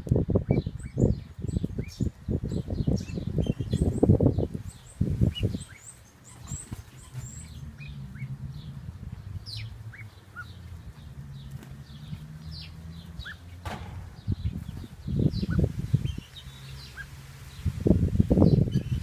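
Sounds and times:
small birds chirping: 0.0s - 19.0s
low rumbling thumps: 6.5s - 16.9s.

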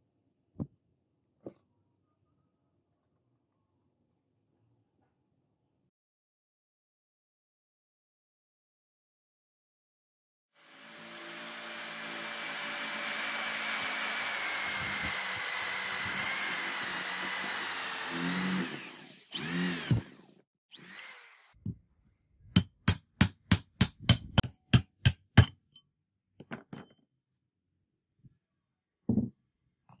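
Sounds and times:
electric drill boring wood: 10.6s - 21.6s.

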